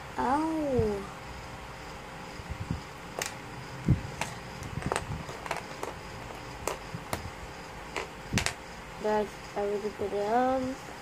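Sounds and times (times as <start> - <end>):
plastic toy bricks clicking: 4.2 - 6.8.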